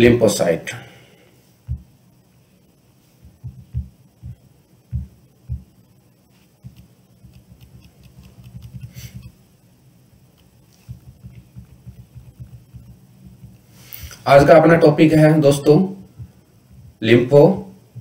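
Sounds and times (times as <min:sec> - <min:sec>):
faint steady hum: 0:00.0 - 0:18.0
dull low thumps: 0:01.6 - 0:02.0, 0:03.2 - 0:05.9, 0:10.2 - 0:13.7, 0:16.0 - 0:17.0
soft low knocks: 0:01.7 - 0:01.9, 0:03.2 - 0:05.8, 0:10.8 - 0:13.6.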